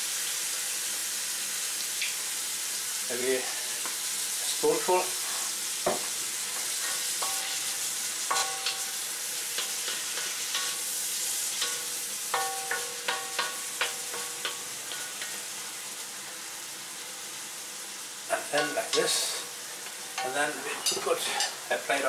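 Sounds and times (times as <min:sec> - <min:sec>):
meat sizzling in a wok: 0:00.0 - 0:22.0
spatula knocking metal pan: 0:07.2 - 0:07.7, 0:08.3 - 0:09.0, 0:11.6 - 0:15.3.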